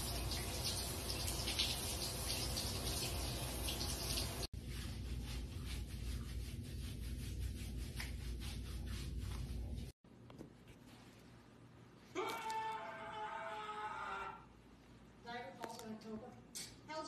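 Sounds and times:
shower spraying water on dog: 0.0 - 4.5.

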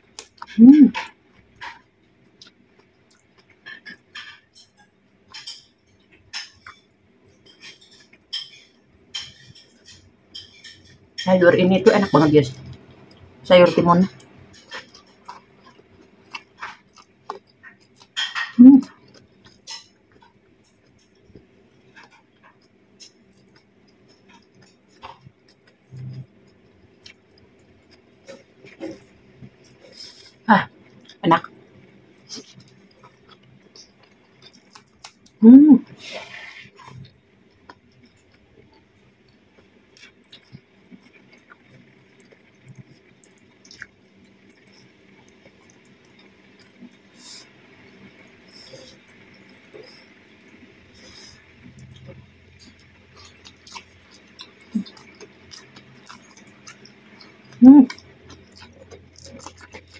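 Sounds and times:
crisp chewing crunches: 39.6 - 59.9
chewing clicks and smacks: 51.6 - 59.9.

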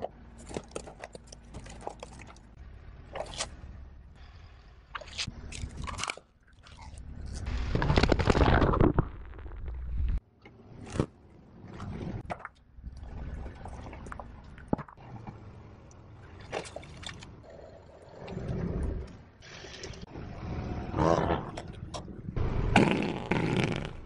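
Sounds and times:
objects popping and cracking: 7.2 - 10.2.

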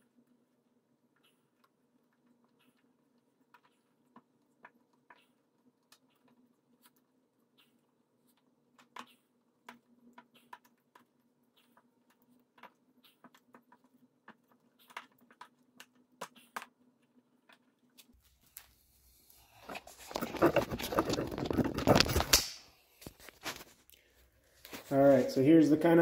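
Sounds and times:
faint clicks and rustles: 0.0 - 25.3
camera handling rumble: 19.6 - 23.8.

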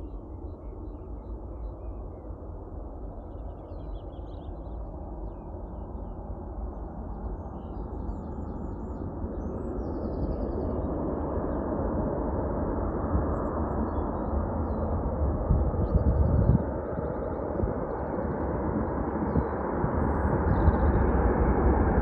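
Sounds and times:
jet engines rumbling: 9.0 - 22.0.

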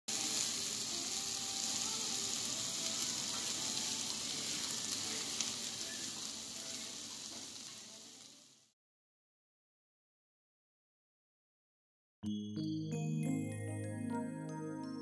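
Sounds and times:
meat sizzling on hot plate: 0.1 - 8.8.

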